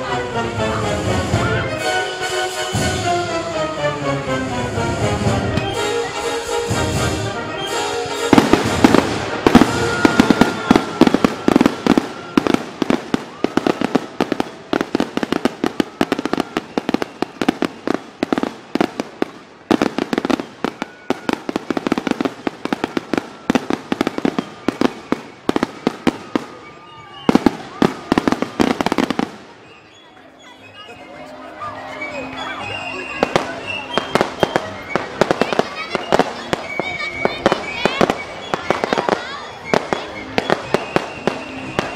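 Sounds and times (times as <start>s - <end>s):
music: 0.0s - 29.4s, 30.0s - 41.9s
fireworks bangs: 4.8s - 30.8s, 31.9s - 41.9s
fireworks crackling and popping: 4.8s - 30.8s, 31.9s - 41.9s.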